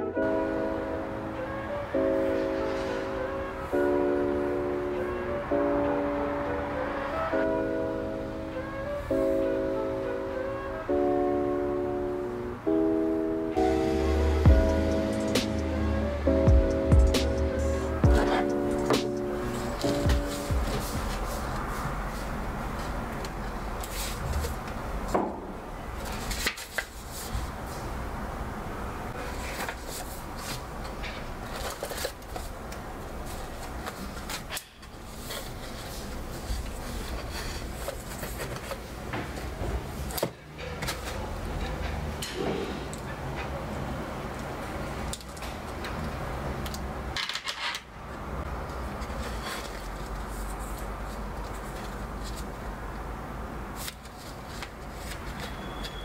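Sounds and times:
paper rustling: 0:18.2 - 0:24.8, 0:26.0 - 0:27.9, 0:29.2 - 0:39.6, 0:48.8 - 0:52.9, 0:53.7 - 0:56.0.

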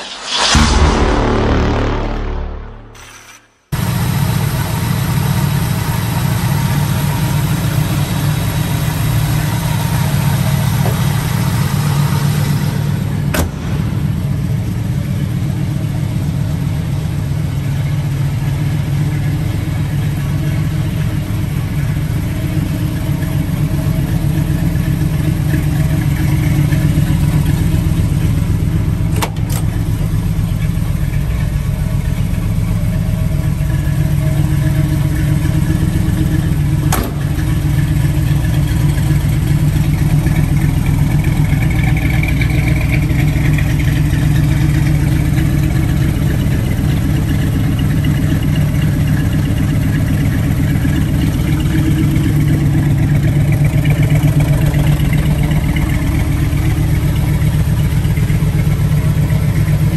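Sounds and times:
car engine idling: 0:03.8 - 0:59.9.

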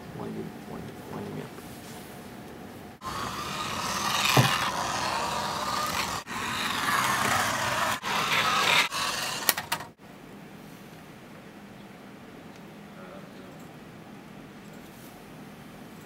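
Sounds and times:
toy car motor on carpet: 0:03.0 - 0:09.9.

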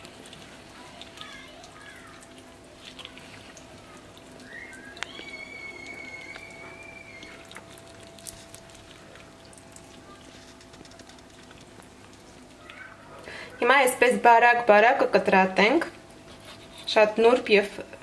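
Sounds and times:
faint hum: 0:00.0 - 0:18.0
thin high whistle-like tone: 0:04.4 - 0:07.4.

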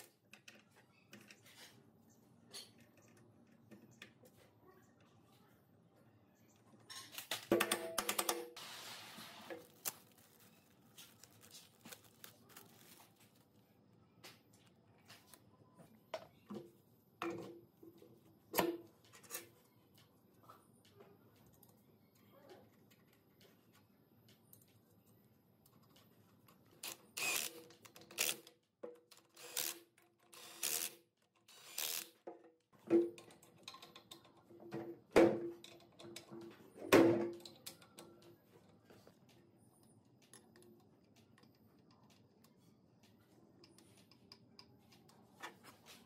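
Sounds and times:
tools clicking and knocking on metal: 0:06.9 - 0:08.5, 0:27.6 - 0:30.4, 0:32.2 - 0:42.6.

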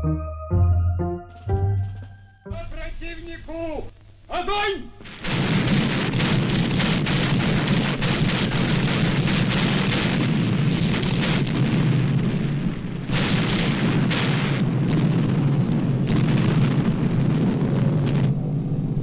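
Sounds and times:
artillery fire and shell bursts: 0:05.0 - 0:18.4.

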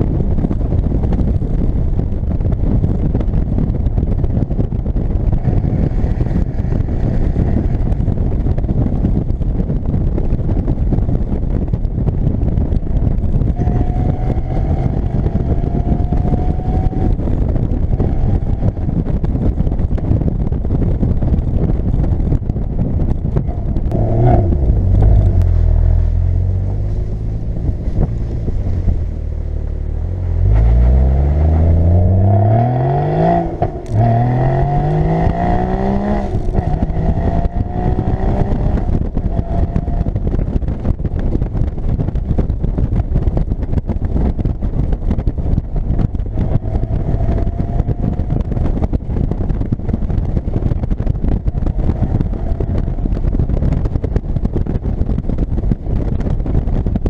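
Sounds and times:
wind and road rush: 0:00.0 - 0:57.0
car engine revving: 0:13.5 - 0:18.9, 0:23.4 - 0:40.2.

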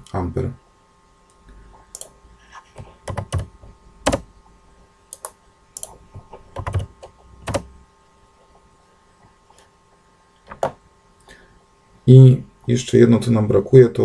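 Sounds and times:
keyboard typing: 0:01.9 - 0:04.2, 0:05.1 - 0:07.7.

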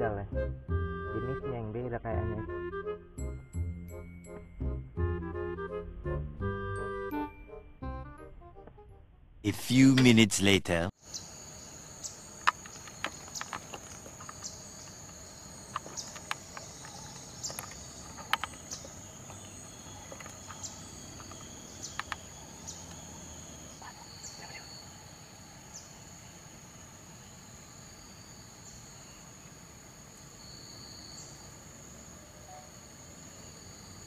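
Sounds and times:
high-pitched insect chorus: 0:11.0 - 0:34.0.

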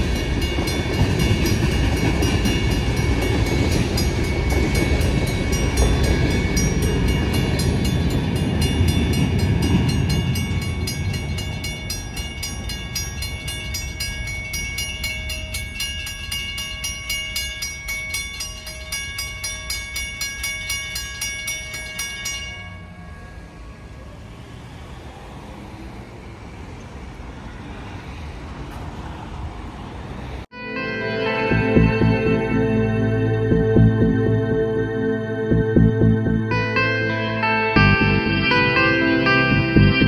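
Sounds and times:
freight cars rumbling past: 0:00.0 - 0:17.0, 0:21.8 - 0:30.5
railroad crossing bell ringing: 0:00.0 - 0:25.1, 0:30.6 - 0:40.0
passing road traffic: 0:00.0 - 0:40.0.

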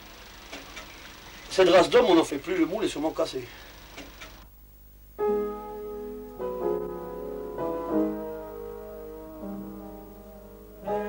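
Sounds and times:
slow keyboard chords: 0:05.1 - 0:11.0.

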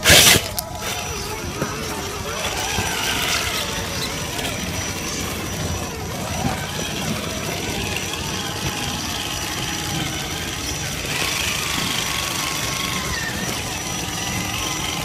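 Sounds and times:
electric motor and gears whining: 0:00.0 - 0:15.0.

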